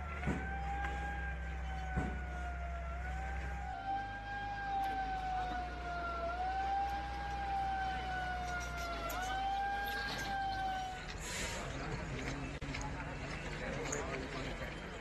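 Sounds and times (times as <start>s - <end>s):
siren wailing: 0.0s - 11.2s
low engine drone: 0.0s - 13.3s.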